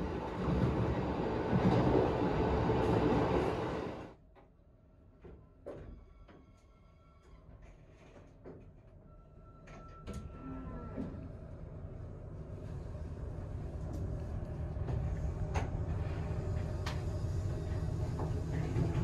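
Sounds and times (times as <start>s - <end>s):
electric train rumble: 0.0s - 4.2s, 10.6s - 19.0s.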